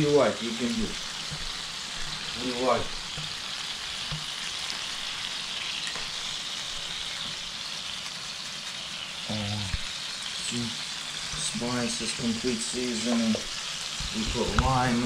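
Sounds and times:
lobsters sizzling on a grill: 0:00.0 - 0:15.0.

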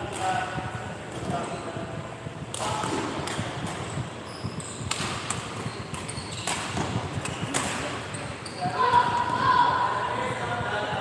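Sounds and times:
shoes squeaking on court: 0:01.2 - 0:01.8, 0:02.8 - 0:09.4
rackets striking shuttlecock: 0:02.4 - 0:08.2.

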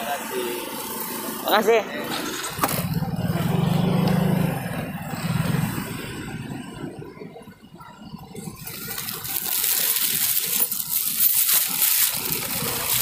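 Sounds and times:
crackling rustling noise: 0:08.3 - 0:13.0.

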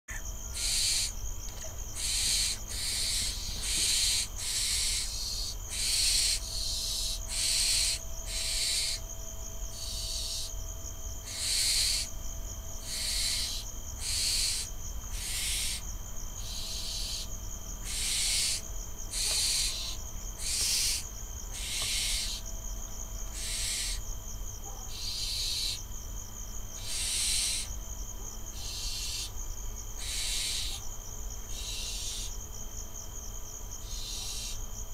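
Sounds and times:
insect trill: 0:00.1 - 0:34.9
owl chicks hissing begging calls: 0:00.5 - 0:01.2, 0:02.0 - 0:09.0, 0:09.8 - 0:10.5, 0:11.2 - 0:12.1, 0:12.8 - 0:15.8, 0:16.4 - 0:22.4, 0:23.3 - 0:24.0, 0:24.9 - 0:25.8, 0:26.8 - 0:27.7, 0:28.5 - 0:29.3, 0:30.0 - 0:30.8, 0:31.5 - 0:32.3, 0:33.8 - 0:34.6.

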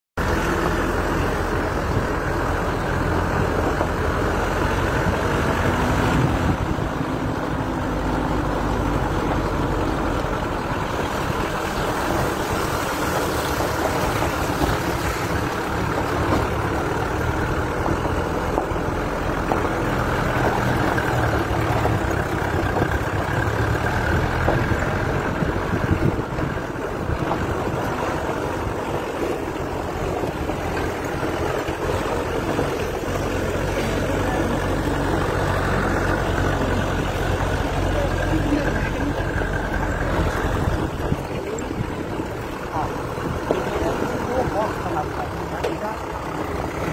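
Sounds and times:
off-road vehicle engine running: 0:00.2 - 0:46.9
tyres on loose gravel: 0:10.2 - 0:46.9.

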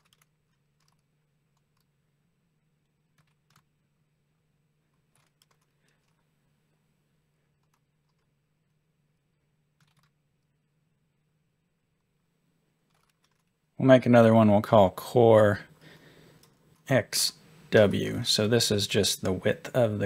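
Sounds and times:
keyboard keystrokes: 0:00.0 - 0:01.0, 0:03.2 - 0:03.7, 0:05.1 - 0:06.2, 0:09.8 - 0:10.2, 0:12.9 - 0:13.5
low steady hum: 0:00.0 - 0:20.0.

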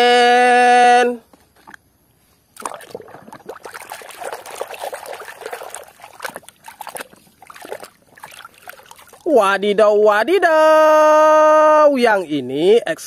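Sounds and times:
water trickling and splashing: 0:02.6 - 0:09.4.

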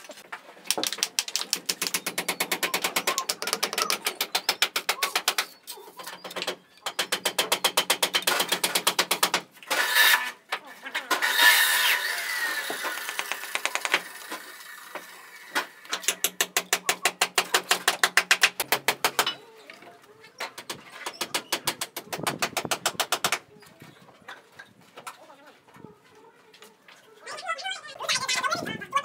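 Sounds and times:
rapid tapping on bricks: 0:00.6 - 0:05.6, 0:06.2 - 0:09.5, 0:12.7 - 0:14.4, 0:15.9 - 0:19.4, 0:20.5 - 0:23.5
trowel scraping mortar: 0:09.6 - 0:14.4.

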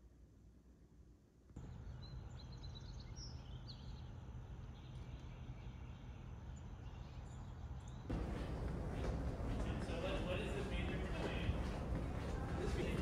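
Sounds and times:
low background noise: 0:00.0 - 0:13.0
bird chirps: 0:01.6 - 0:08.1.

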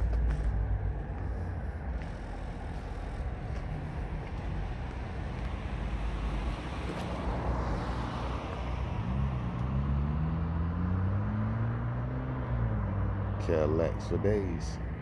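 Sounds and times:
road traffic rumble: 0:00.0 - 0:15.0
vehicle engine accelerating: 0:00.0 - 0:15.0.

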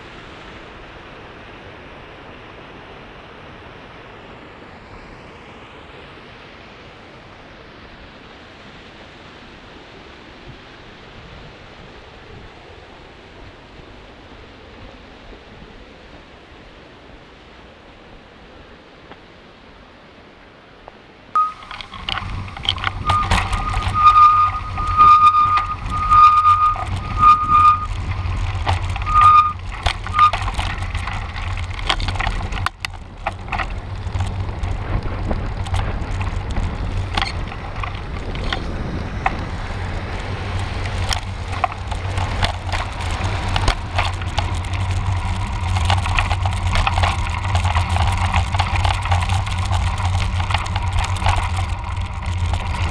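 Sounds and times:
bike tyres and wind rumble: 0:00.0 - 0:52.9
high squeal pulses: 0:21.4 - 0:30.4
bike rattles and clicks: 0:21.4 - 0:52.9.

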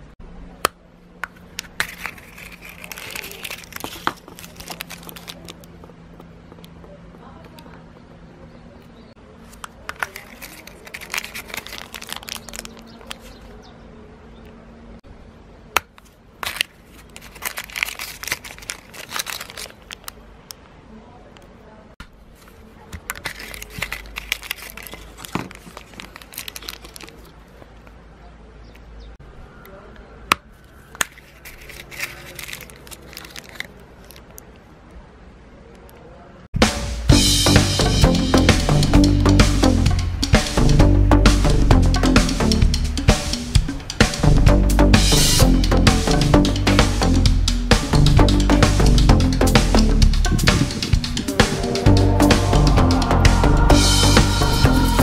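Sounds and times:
plastic bag crinkling: 0:01.4 - 0:05.9, 0:09.4 - 0:13.5, 0:16.0 - 0:20.2, 0:22.3 - 0:27.9, 0:30.7 - 0:34.4
plastic capsule clicking open: 0:09.6 - 0:13.2.

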